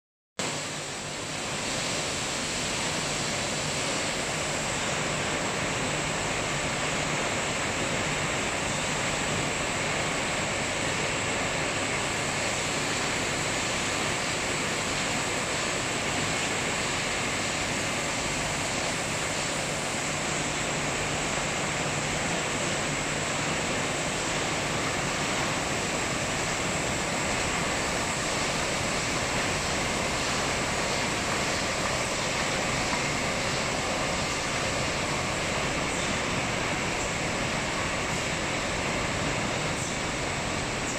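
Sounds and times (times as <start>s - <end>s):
bottling machinery hissing din: 0.4s - 40.9s.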